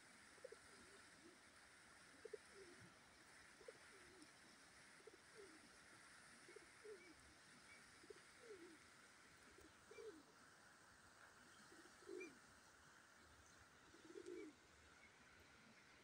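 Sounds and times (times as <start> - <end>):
steady background hiss: 0.0 - 16.0
pigeons cooing: 2.2 - 2.9, 5.0 - 5.7, 6.5 - 7.2, 8.0 - 8.8, 9.4 - 10.3, 11.6 - 12.4, 13.9 - 14.6.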